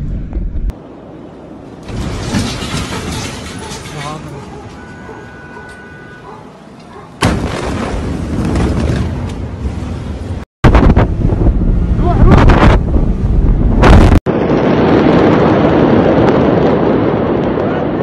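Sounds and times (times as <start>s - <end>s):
heavy rumbling: 0.0s - 18.0s
loud explosion boom: 7.2s - 9.2s, 10.6s - 17.3s
steady rushing noise: 9.1s - 18.0s.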